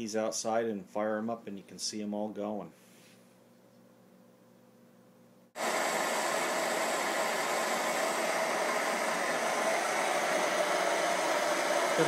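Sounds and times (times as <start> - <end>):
pressure stove burners roaring: 5.6 - 12.0.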